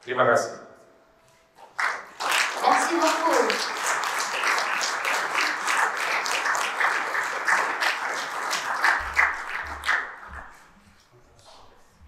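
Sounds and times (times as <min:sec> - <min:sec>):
audience applauding: 0:01.8 - 0:10.8.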